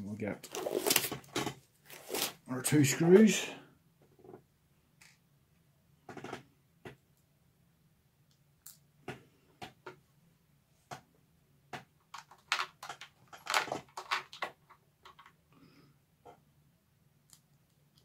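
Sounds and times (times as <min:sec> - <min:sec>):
paper rustling: 0:00.4 - 0:02.4.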